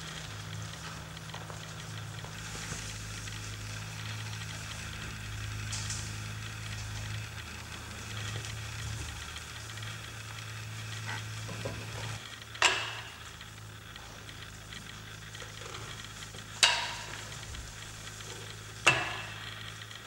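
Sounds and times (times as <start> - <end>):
low steady hum: 0.0 - 20.0
sharp metallic knocks: 12.6 - 13.3, 16.6 - 17.4, 18.8 - 19.5.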